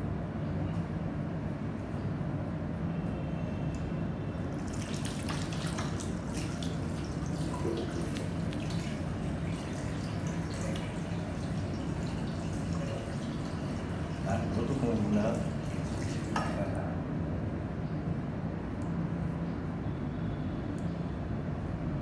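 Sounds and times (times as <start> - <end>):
steady low hum: 0.0 - 22.0
tap water running into basin: 4.4 - 16.8
hands rinsing under water: 4.5 - 16.8.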